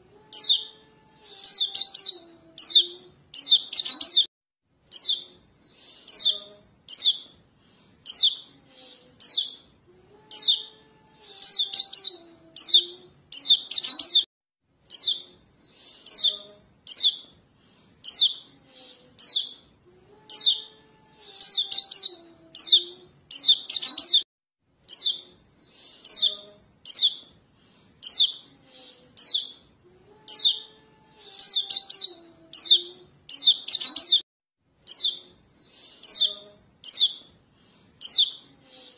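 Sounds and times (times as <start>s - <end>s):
young birds begging chirps: 0.4s - 4.3s, 4.9s - 7.3s, 10.3s - 14.3s, 14.9s - 17.3s, 19.2s - 19.6s, 20.3s - 24.2s, 24.9s - 27.3s, 28.0s - 29.6s, 30.3s - 34.2s, 34.9s - 37.2s, 38.0s - 38.4s.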